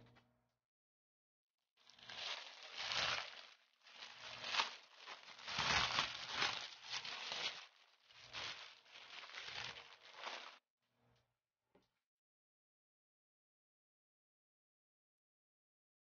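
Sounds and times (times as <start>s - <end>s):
plastic wrapping crinkling: 1.8s - 10.6s.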